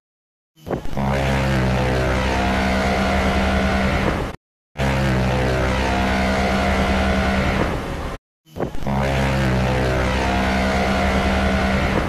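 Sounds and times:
ship's horn low blast: 1.0 - 8.2, 8.9 - 12.0.

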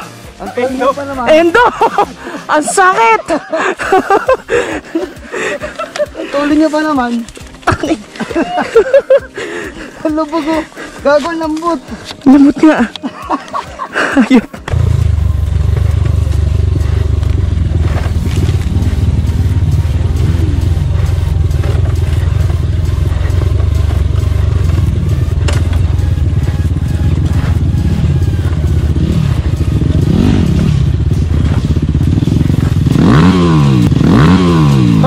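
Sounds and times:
motorcycle engine revving: 14.6 - 35.0
knocks and clatter from riding: 15.6 - 27.8.

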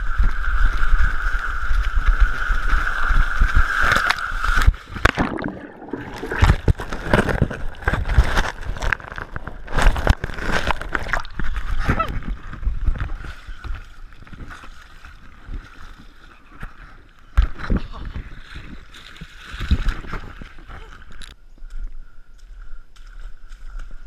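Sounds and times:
water sloshing and gurgling: 0.0 - 21.4
plunge into water: 2.3 - 14.7
knocks and splashes: 3.8 - 16.7, 17.4 - 20.8.

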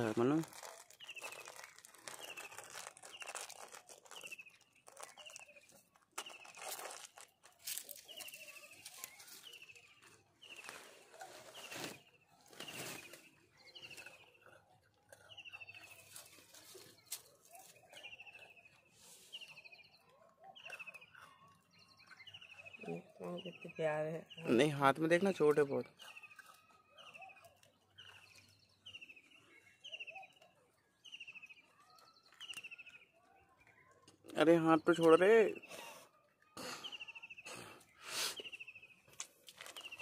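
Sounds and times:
biscuit wrapper crinkling: 0.0 - 14.3, 15.2 - 18.5, 39.1 - 40.0
bird chirping: 0.0 - 40.0.

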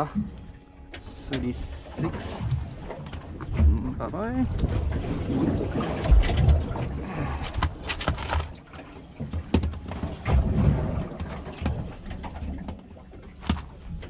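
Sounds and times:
clicks and knocks handling fish: 0.0 - 4.7, 6.3 - 14.0
low uneven rumble: 0.0 - 8.7.

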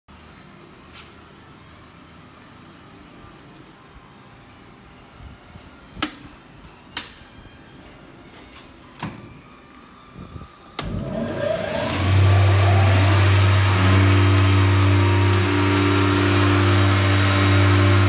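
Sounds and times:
electric motor spinning up humming: 10.8 - 18.0.

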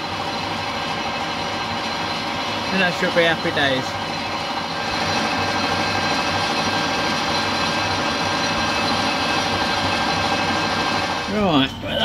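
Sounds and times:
metal lathe cutting: 0.0 - 11.9.

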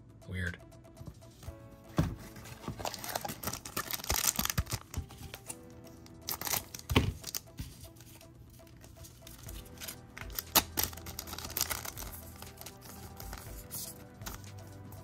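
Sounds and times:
soft background music: 0.0 - 15.0
wrapper crinkling and tearing: 2.8 - 5.6, 6.2 - 7.5, 9.8 - 13.4.

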